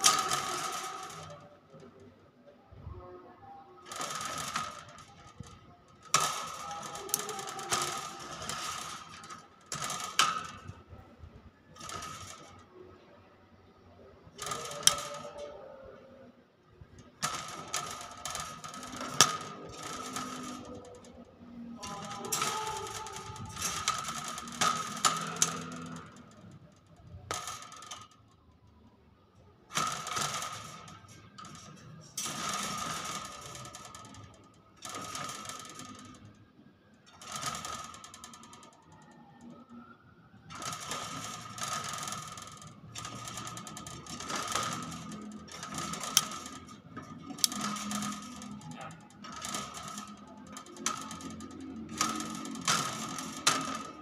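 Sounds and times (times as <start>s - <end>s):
sharp clicks: 40.5s - 54.0s.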